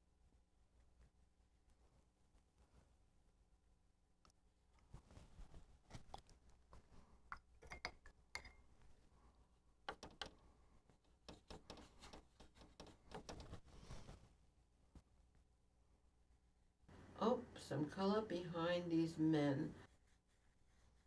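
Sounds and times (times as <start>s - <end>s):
brush tapping in paint palette: 9.8s - 13.6s.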